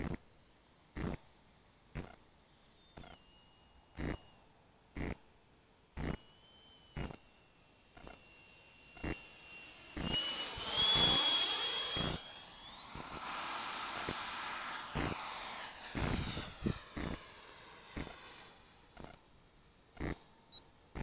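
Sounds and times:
model jet engine whine: 0:00.0 - 0:21.0
rush of air: 0:09.2 - 0:18.9.

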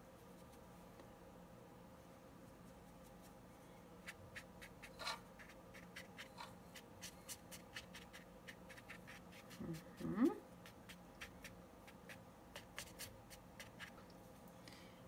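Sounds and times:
paintbrush stroking paper: 0:04.0 - 0:09.9, 0:10.6 - 0:14.0.

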